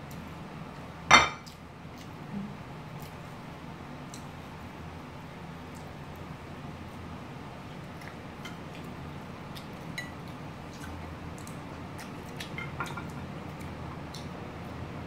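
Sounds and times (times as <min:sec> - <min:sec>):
chopsticks clinking on plates: 0:12.4 - 0:13.2.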